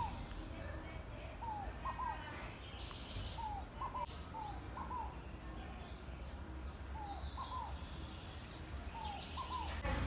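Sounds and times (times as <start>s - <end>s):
birds whistling: 0.0s - 0.5s, 1.4s - 5.4s, 6.9s - 9.8s.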